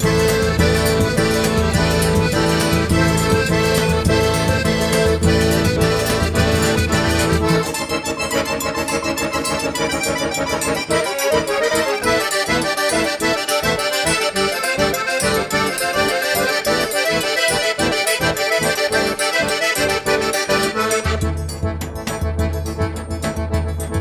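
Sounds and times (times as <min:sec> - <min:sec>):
deep bass: 0:00.0 - 0:10.9, 0:20.1 - 0:24.0
lively dance music: 0:00.0 - 0:24.0.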